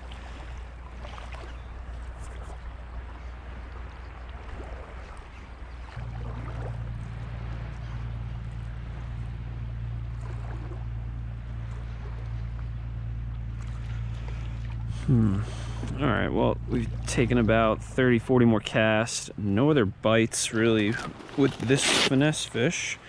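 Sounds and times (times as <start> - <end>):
low wind rumble: 0.0 - 23.0
waves lapping on rocks: 20.1 - 23.0.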